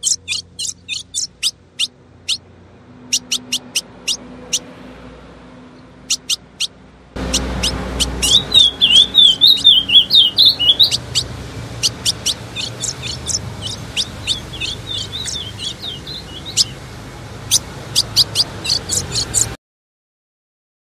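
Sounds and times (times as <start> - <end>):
bird chip notes and twittering: 0.0 - 2.4, 3.0 - 4.7, 5.8 - 19.6.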